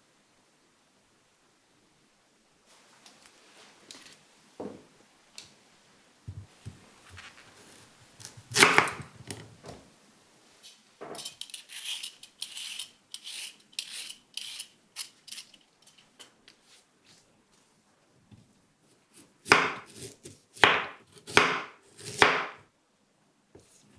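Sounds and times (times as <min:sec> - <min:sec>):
peeler scraping carrot skin: 0:11.2 - 0:16.1.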